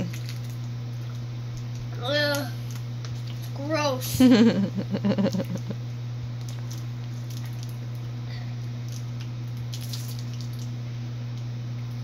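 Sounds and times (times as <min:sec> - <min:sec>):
steady low hum: 0:00.0 - 0:12.0
plastic candy wrapper rustling: 0:06.4 - 0:08.0, 0:08.9 - 0:10.7.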